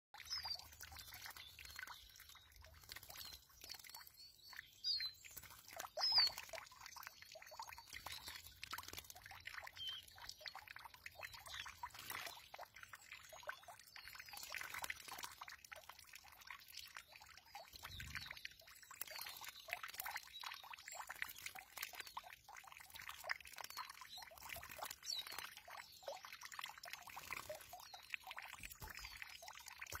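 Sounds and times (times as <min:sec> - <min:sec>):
birds splashing water: 0:00.2 - 0:30.0
high bird chirps: 0:03.1 - 0:05.3, 0:06.0 - 0:06.5.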